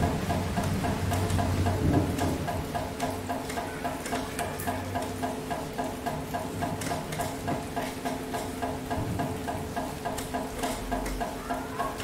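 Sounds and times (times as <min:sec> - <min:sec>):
rain drop clicks: 0:00.0 - 0:12.0
regular ticking: 0:00.0 - 0:12.0.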